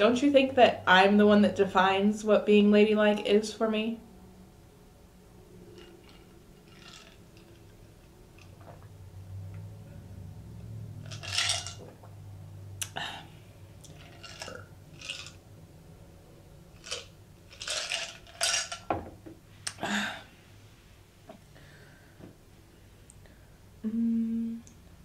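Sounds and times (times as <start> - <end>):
person swallowing water: 8.5 - 9.0.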